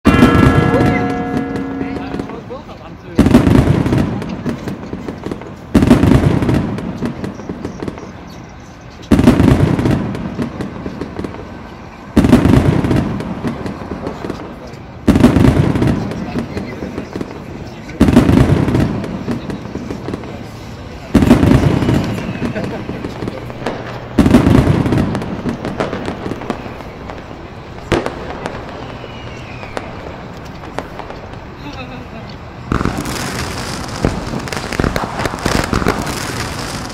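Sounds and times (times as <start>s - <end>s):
firework shell bangs: 0.0s - 8.1s, 32.7s - 36.9s
firework crackling: 0.0s - 36.9s
faint descending whistle: 28.7s - 29.9s
crackling pops: 32.3s - 36.9s.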